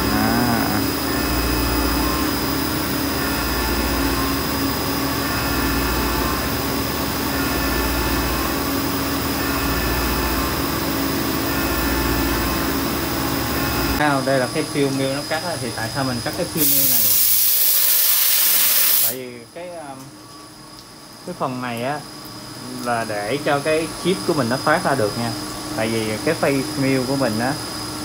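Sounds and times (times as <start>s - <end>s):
milling machine cutting steel: 0.0s - 14.0s
coolant spray and air hissing: 16.5s - 19.3s.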